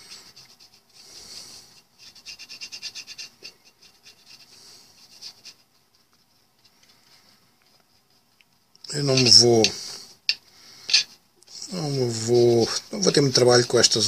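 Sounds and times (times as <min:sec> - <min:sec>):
brush scrubbing inside steel case: 0:00.0 - 0:06.6, 0:08.9 - 0:09.8, 0:10.9 - 0:14.0.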